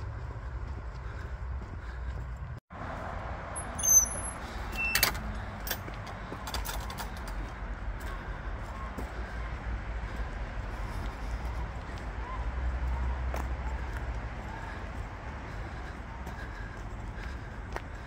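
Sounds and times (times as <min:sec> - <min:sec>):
footsteps on dirt path: 0:00.0 - 0:03.1, 0:04.8 - 0:18.0.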